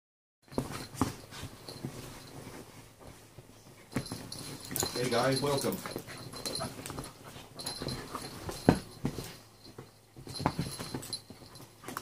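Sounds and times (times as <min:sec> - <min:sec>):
dogs scuffling: 0:00.4 - 0:12.0
dog breathing: 0:04.1 - 0:09.6.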